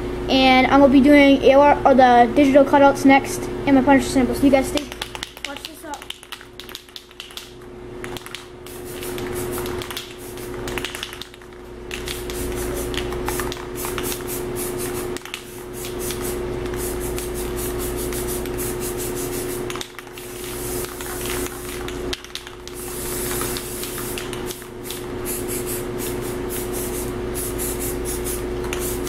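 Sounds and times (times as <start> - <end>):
steady low hum: 0.0 - 29.0
spray can hissing: 8.7 - 11.1, 11.9 - 21.8, 22.6 - 29.0.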